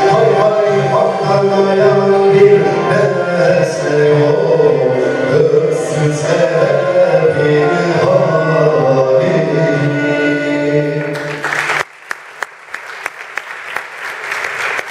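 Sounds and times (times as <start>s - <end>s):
person singing: 0.0s - 11.5s
audience applause: 11.0s - 14.9s.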